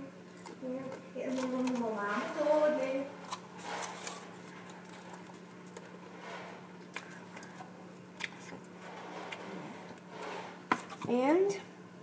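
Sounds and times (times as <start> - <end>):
steady low hum: 0.0 - 12.0
crackers clicking and rustling: 1.3 - 2.4, 3.2 - 11.1.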